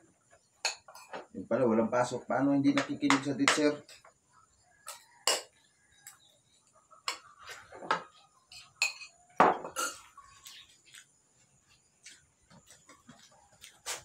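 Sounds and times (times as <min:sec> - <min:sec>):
cutlery clinking and scraping plates: 0:00.6 - 0:01.3, 0:02.7 - 0:04.2, 0:04.8 - 0:06.2, 0:07.0 - 0:10.6.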